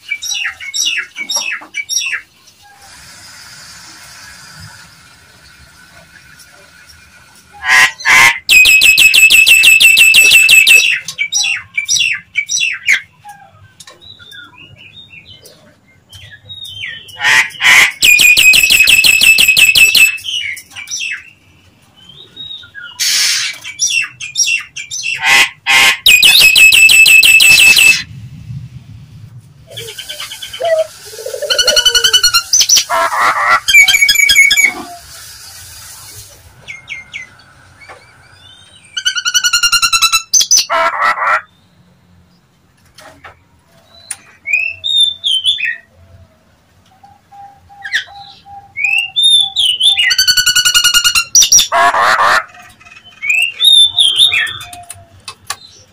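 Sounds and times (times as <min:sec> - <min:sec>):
myna bird harsh pulsed calls: 0:22.8 - 0:28.1, 0:29.7 - 0:37.4.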